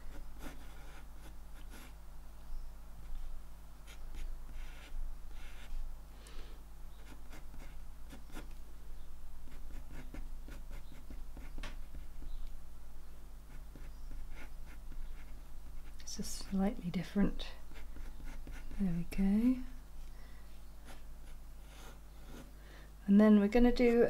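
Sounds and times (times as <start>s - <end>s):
pencil scratching on paper: 0.1s - 2.0s, 3.9s - 5.7s, 7.0s - 8.5s, 9.5s - 12.2s, 13.5s - 16.6s, 17.7s - 18.9s.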